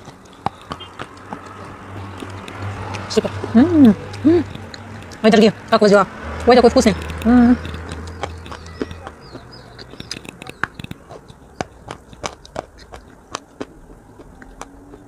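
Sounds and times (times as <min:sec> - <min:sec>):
wet mouth clicks and lip smacks: 0:00.0 - 0:05.4, 0:06.4 - 0:15.0
faint chirping: 0:07.7 - 0:12.2.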